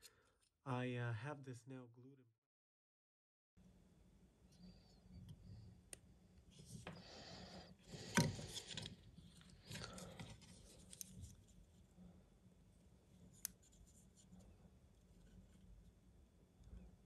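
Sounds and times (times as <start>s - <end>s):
rubbing and scraping handling noises: 7.8s - 12.0s, 13.1s - 16.0s.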